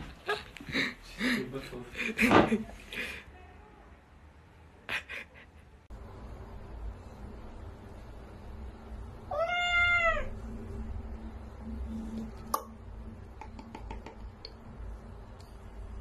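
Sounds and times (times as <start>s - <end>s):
kitten meowing: 9.3s - 10.3s.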